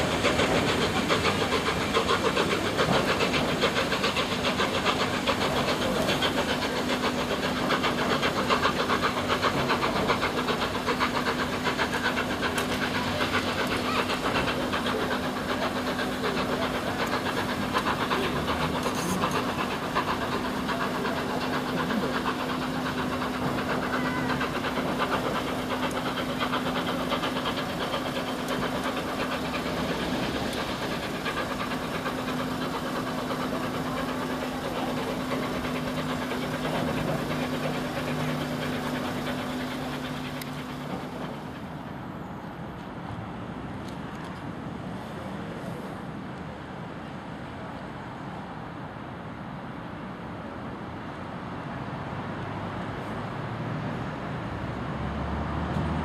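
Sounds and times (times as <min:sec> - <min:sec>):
hiss of steam: 0:00.0 - 0:42.7
coach wheels rumbling on track: 0:00.0 - 0:56.0
steam locomotive exhaust beats: 0:00.0 - 0:56.0.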